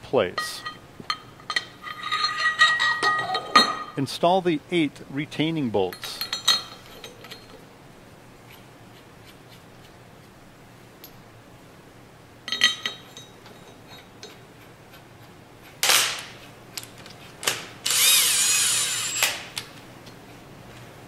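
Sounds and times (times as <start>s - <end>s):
power driver whining: 17.8s - 19.6s.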